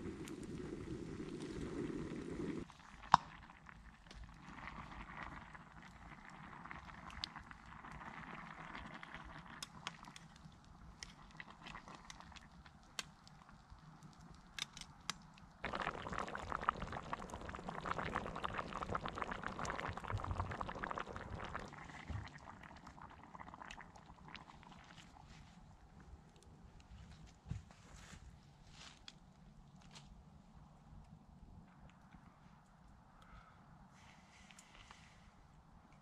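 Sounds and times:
liquid bubbling in a pot: 0.0 - 26.9
faint crackling: 0.0 - 30.2.

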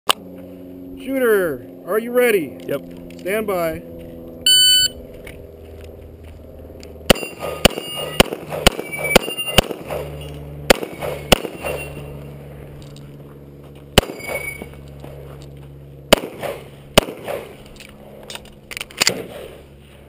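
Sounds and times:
shot timer beep: 4.5 - 5.0
pistol shots: 7.1 - 10.1, 10.7 - 12.1, 14.0 - 14.6, 16.1 - 17.6
steel targets ringing: 11.5 - 12.1.

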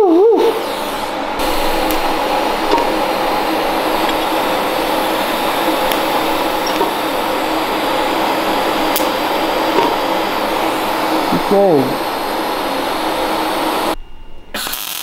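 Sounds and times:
machine whirring hiss: 0.0 - 15.0.

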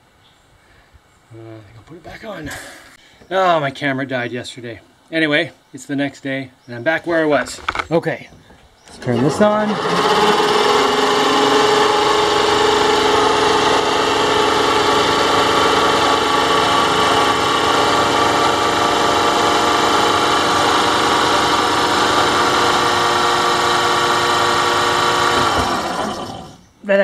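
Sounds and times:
electric motor humming: 9.0 - 26.6
motor rubbing: 9.0 - 26.6.

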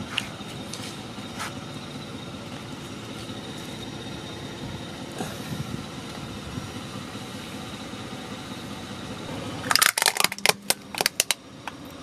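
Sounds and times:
low steady rumble: 0.0 - 12.0
plastic toys snapping and cracking: 9.6 - 11.4.

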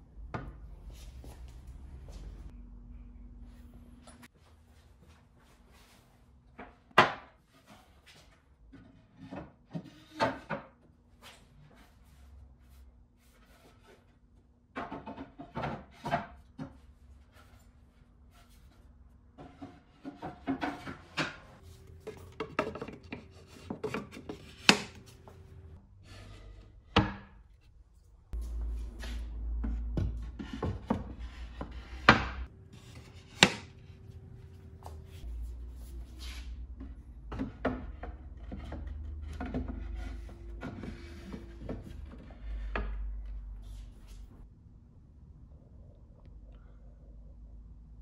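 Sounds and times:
wood rubbing and scraping: 28.6 - 44.4.

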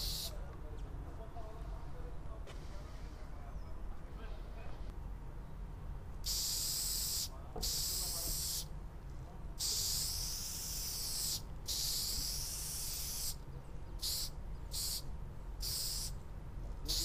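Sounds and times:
spray can hissing: 0.0 - 0.3, 6.2 - 8.7, 9.6 - 13.4, 14.0 - 15.0, 15.6 - 16.2.

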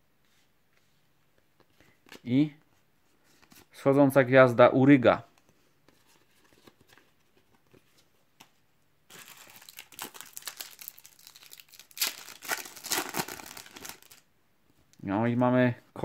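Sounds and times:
foil pack crinkling and tearing: 9.1 - 14.2.

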